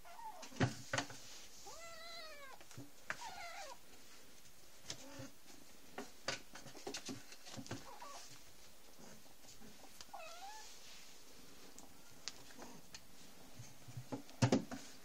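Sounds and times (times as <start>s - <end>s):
kitten meowing: 10.1s - 10.6s.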